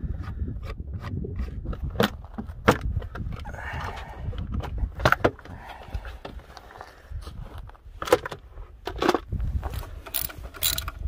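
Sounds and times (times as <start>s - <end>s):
metal tools clinking: 9.7s - 11.0s.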